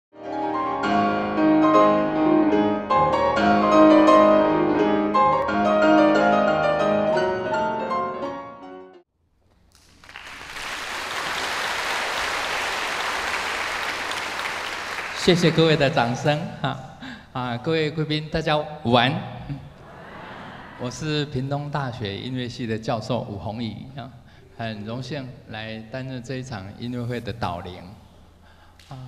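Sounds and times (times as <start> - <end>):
solo piano music: 0.2 - 9.0
audience applauding: 9.7 - 16.2.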